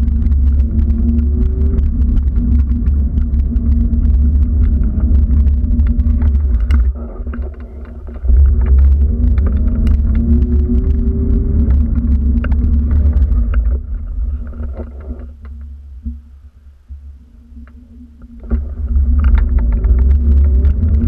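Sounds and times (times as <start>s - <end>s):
wind buffeting microphone: 0.0s - 15.6s.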